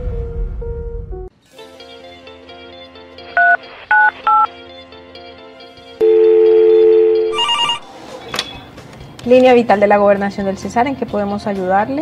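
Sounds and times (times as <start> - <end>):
soft background music: 0.1 - 12.0
telephone keypad beeps: 3.4 - 4.5, 6.0 - 7.9
steady phone line tone: 6.0 - 7.9.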